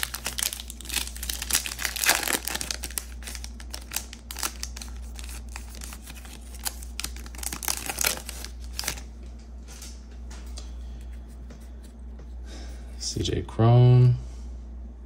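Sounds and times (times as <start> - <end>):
plastic wrapper crinkling: 0.0 - 9.1.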